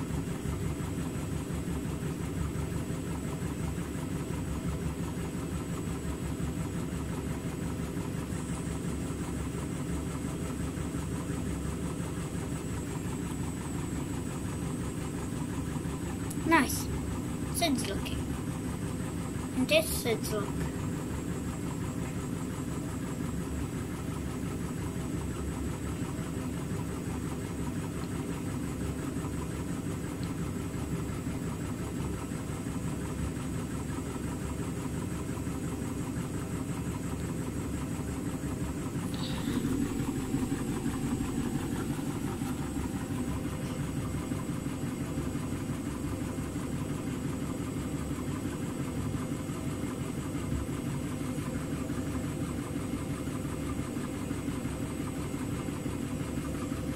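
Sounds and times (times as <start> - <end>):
washing machine running: 0.0 - 56.9.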